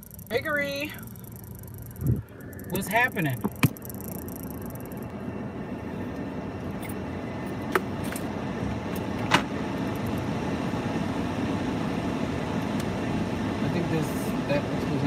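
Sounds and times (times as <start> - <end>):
sharp clicks: 0.0 - 5.0
car engine idling: 0.0 - 15.0.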